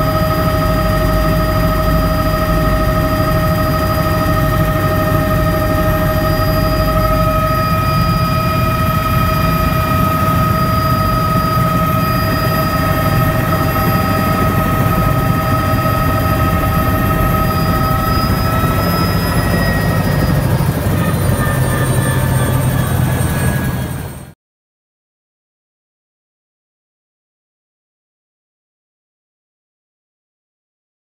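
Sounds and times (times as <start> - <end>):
helicopter rotor chop: 0.0 - 24.3
helicopter turbine whining: 0.0 - 24.4.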